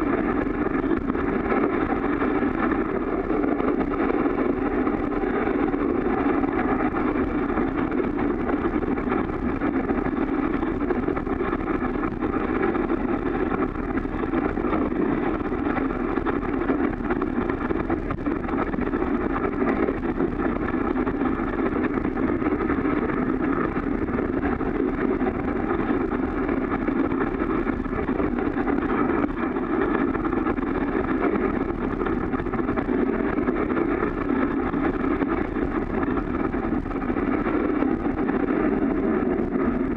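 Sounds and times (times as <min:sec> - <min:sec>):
sled runners on packed snow: 0:10.3 - 0:39.9.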